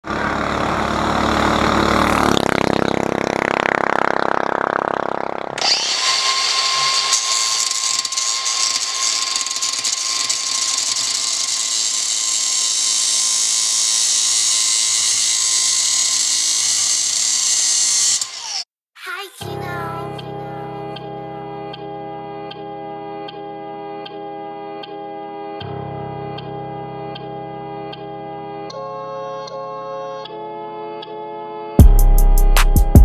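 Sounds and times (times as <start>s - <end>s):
angle grinder cutting metal: 0.0s - 3.2s, 4.8s - 18.7s
low rising and falling sound: 0.0s - 16.6s.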